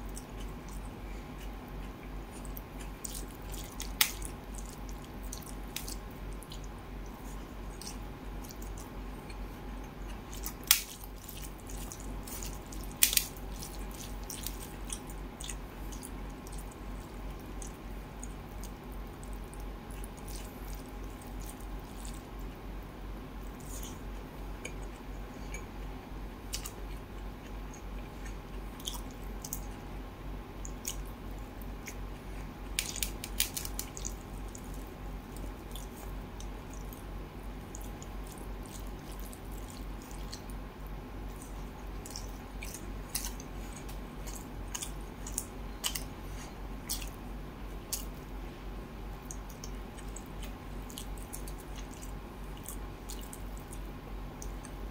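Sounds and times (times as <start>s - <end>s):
wet squishing of food mixed by hand: 0.0s - 25.2s, 30.6s - 54.9s
chewing food: 0.0s - 30.0s, 30.6s - 48.4s, 49.0s - 54.9s
wet clicks and smacks: 0.1s - 7.2s, 7.8s - 22.3s, 26.5s - 29.8s, 30.6s - 32.0s, 32.7s - 37.0s, 41.3s - 46.2s, 46.8s - 47.2s, 47.9s - 48.2s, 49.2s - 54.8s.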